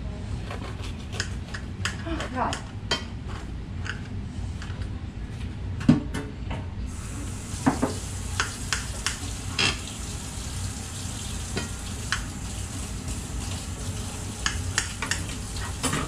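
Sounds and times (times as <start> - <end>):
bread sizzling in a pan: 6.9 - 15.8.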